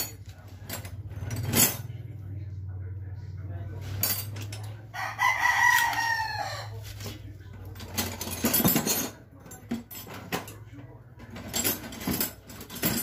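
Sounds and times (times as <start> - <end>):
small parts clicking and rustling: 7.0 - 13.0.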